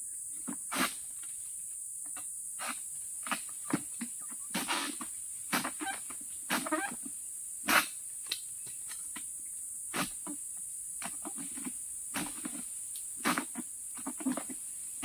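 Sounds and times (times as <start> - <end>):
insect drone: 0.0 - 15.0
sickle knocking and scraping fronds: 2.1 - 7.1, 11.0 - 15.0.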